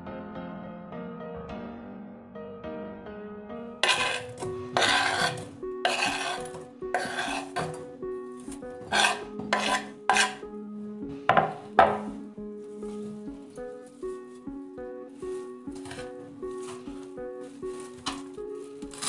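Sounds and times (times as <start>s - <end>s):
knife scraping wooden board: 3.8s - 7.9s, 8.5s - 10.4s, 15.8s - 16.8s, 17.9s - 19.0s.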